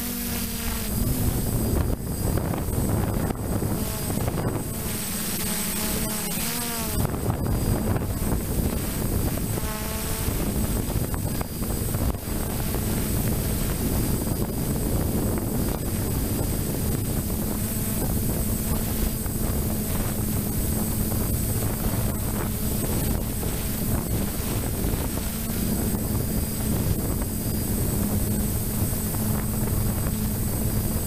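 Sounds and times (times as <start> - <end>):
drone motors humming: 0.0 - 31.0
wind buffeting microphone: 0.0 - 31.0.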